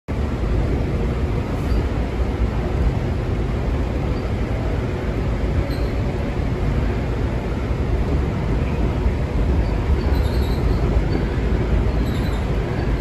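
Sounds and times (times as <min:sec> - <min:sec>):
railcar rumbling on track: 0:00.1 - 0:13.0
faint high squeaks: 0:05.6 - 0:06.0, 0:09.6 - 0:11.2, 0:11.9 - 0:13.0.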